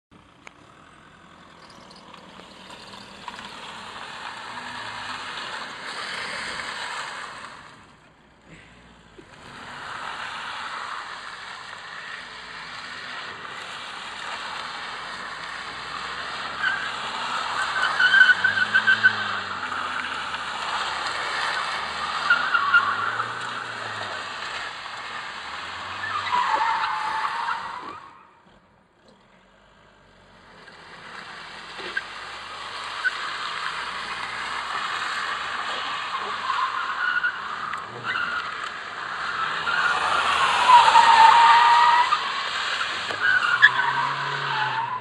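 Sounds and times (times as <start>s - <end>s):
car engine revving: 0.4s - 28.6s, 29.6s - 45.0s
tyres squealing: 16.5s - 24.1s, 34.0s - 45.0s.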